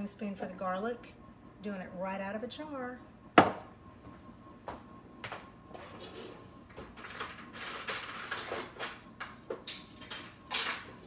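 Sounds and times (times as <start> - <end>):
utensils rattling in drawer: 7.0 - 9.0.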